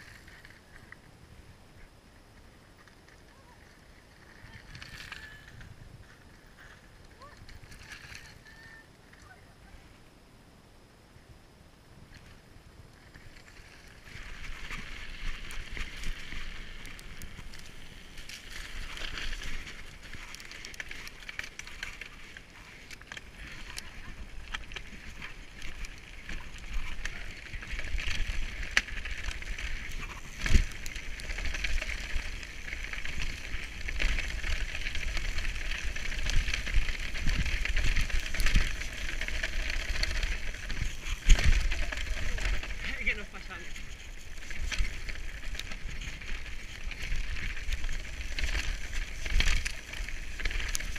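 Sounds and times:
tyres crunching over gravel: 13.2 - 50.9.

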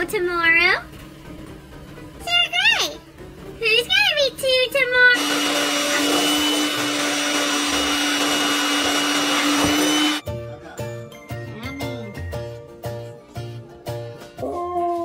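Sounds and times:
electric blower running: 5.2 - 10.2.

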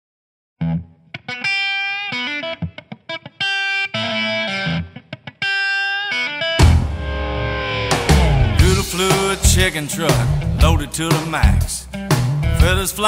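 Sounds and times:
solo guitar picking notes: 0.6 - 10.8
full band playing: 6.6 - 13.0.

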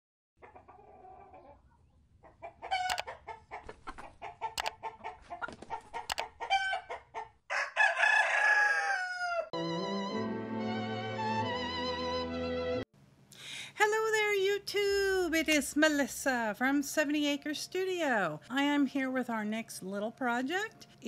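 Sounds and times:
chickens clucking: 0.4 - 7.4
rooster crowing: 6.5 - 9.6
music with violin-like notes: 9.6 - 12.8.

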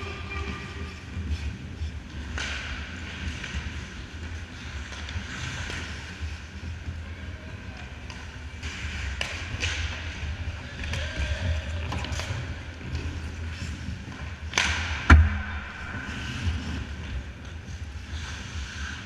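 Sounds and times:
low rink hum: 0.0 - 19.0
skates scraping on ice: 0.0 - 19.0
hockey sticks and puck knocking: 2.2 - 3.8, 8.0 - 11.2, 11.8 - 17.6.

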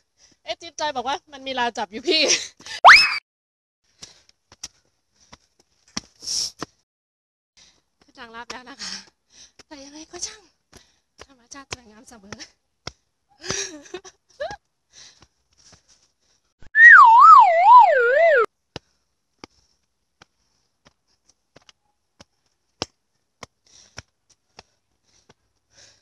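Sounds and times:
wobbling whistle: 2.8 - 3.2, 16.7 - 18.5.

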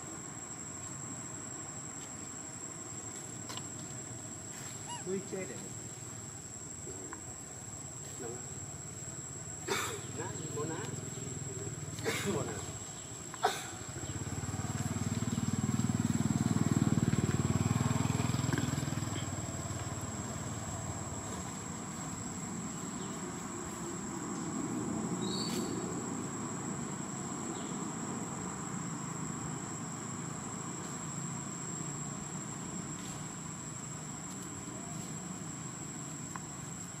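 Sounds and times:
high-pitched insect whine: 0.0 - 37.0
distant vehicle passing: 13.9 - 22.7.

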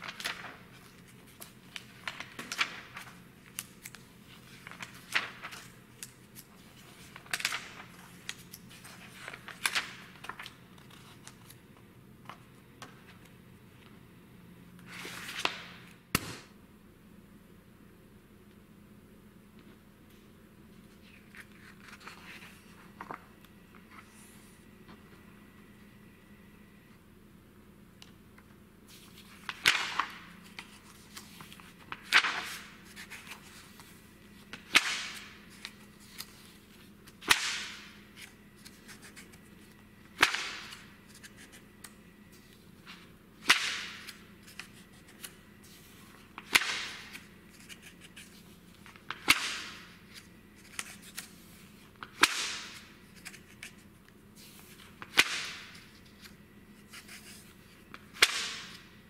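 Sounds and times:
magazine pages turning: 0.0 - 11.6, 20.9 - 24.4, 28.9 - 58.8.

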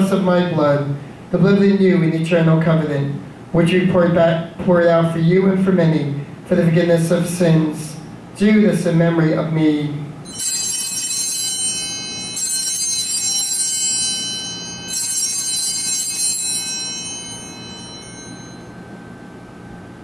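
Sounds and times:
altar bells ringing: 10.2 - 19.9.

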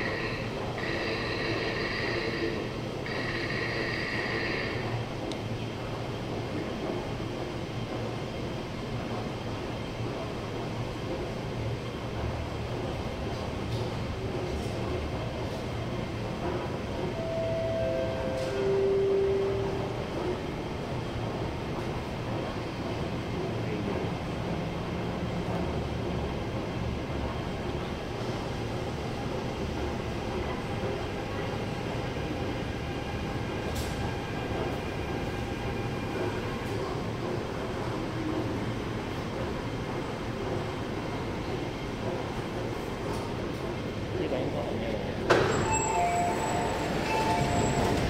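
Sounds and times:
low rumble and hum of metro platform: 0.0 - 48.0.

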